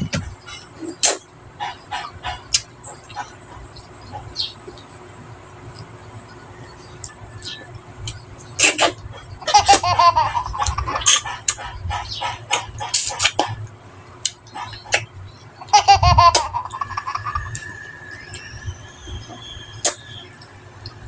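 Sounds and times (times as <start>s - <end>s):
mouth smacks and sucking clicks: 0.8s - 3.2s, 7.0s - 9.1s, 10.6s - 15.1s, 17.3s - 18.5s
high-pitched laughing voice: 9.4s - 11.7s, 15.6s - 17.6s.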